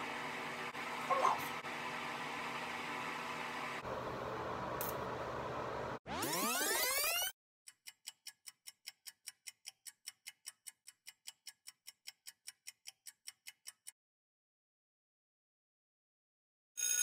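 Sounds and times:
clock-like ticking: 0:07.7 - 0:14.0.

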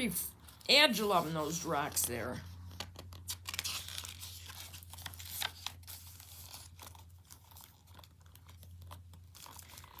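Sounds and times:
paper pages rustling and crackling: 0:00.5 - 0:10.0.

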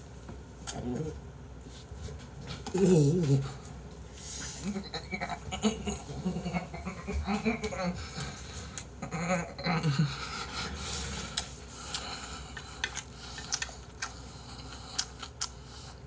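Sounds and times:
slurping and chewing noodles: 0:10.6 - 0:16.0.

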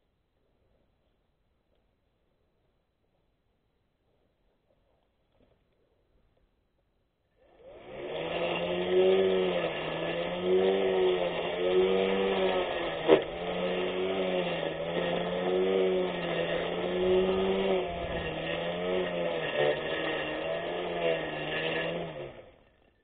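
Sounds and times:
electric grass cutter motor running: 0:07.4 - 0:23.0.

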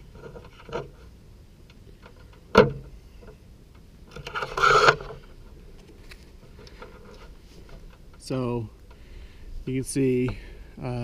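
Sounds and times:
rustling scrape: 0:04.2 - 0:05.4, 0:06.0 - 0:08.1.

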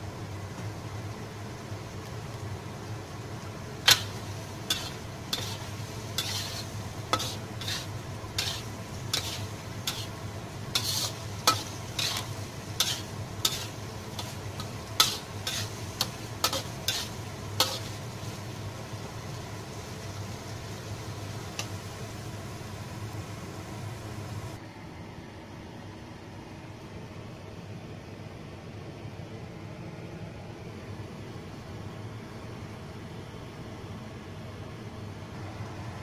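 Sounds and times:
ladle scraping a wok: 0:03.8 - 0:18.6.

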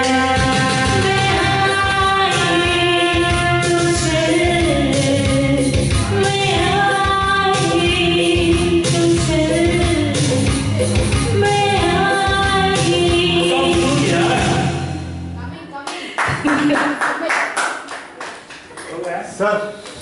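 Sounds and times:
woman singing into microphone: 0:00.0 - 0:14.6
karaoke backing track: 0:00.0 - 0:17.0.

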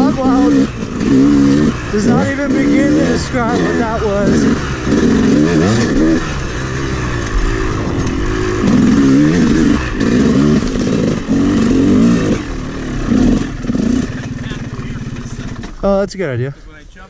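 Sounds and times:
dirt bike engine revving: 0:00.0 - 0:16.2.

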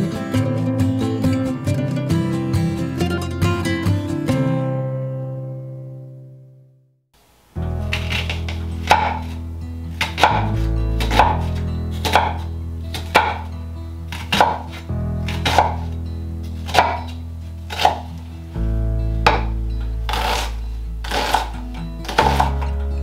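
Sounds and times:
background music low chords: 0:07.5 - 0:23.0
knife slicing onion on board: 0:07.9 - 0:13.5, 0:14.1 - 0:15.9, 0:16.6 - 0:18.3, 0:19.3 - 0:22.8.

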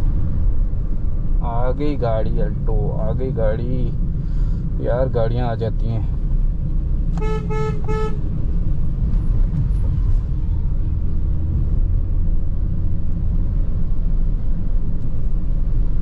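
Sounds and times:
car engine rumble: 0:00.0 - 0:16.0
road noise: 0:00.0 - 0:16.0
car horn honking: 0:07.2 - 0:08.3.

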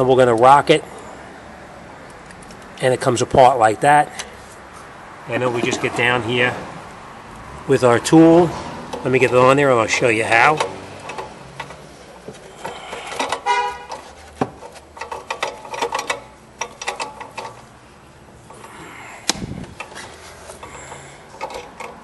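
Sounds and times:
metal tool clinking on engine parts: 0:10.4 - 0:17.7, 0:19.8 - 0:22.0.

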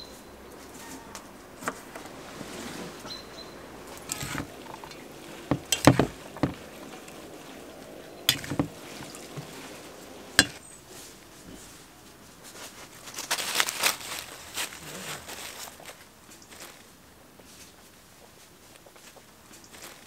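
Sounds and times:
salad leaves rustling: 0:00.0 - 0:20.0
spoons knocking a bowl: 0:05.5 - 0:06.6, 0:08.3 - 0:09.2, 0:10.4 - 0:10.6.

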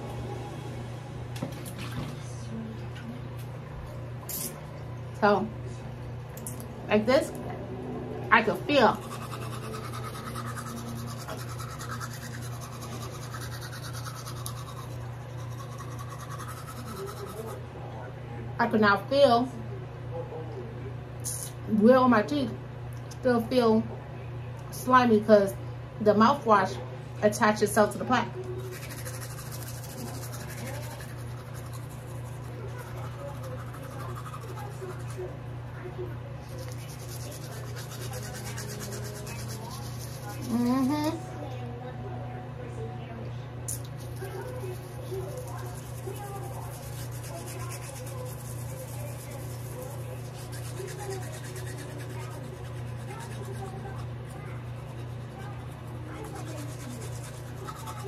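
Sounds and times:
steady low hum: 0:00.0 - 0:58.0
toothbrush scrubbing teeth: 0:08.4 - 0:17.6, 0:28.4 - 0:35.4, 0:36.4 - 0:41.2, 0:43.7 - 0:58.0.

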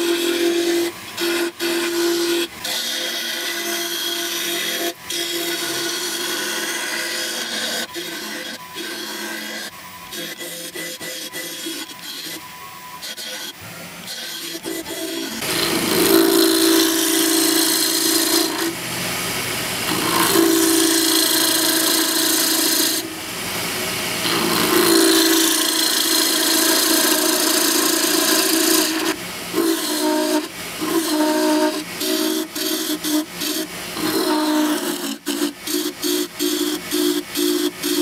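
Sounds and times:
gouge scraping wood on lathe: 0:00.0 - 0:12.4, 0:13.0 - 0:18.8, 0:19.9 - 0:23.1, 0:24.2 - 0:38.0
lathe humming: 0:00.0 - 0:38.0.

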